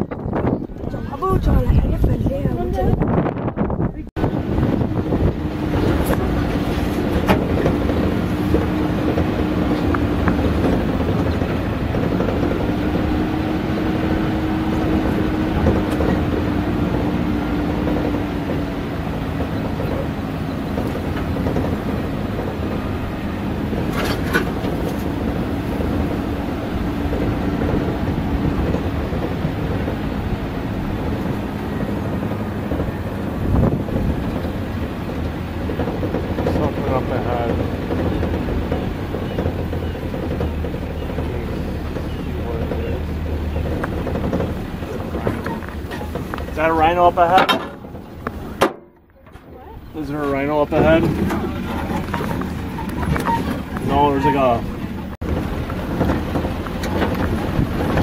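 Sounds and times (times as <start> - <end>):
vehicle body rattling: 0.0 - 58.0
vehicle engine drone: 0.0 - 58.0
sharp knocks: 47.3 - 49.4.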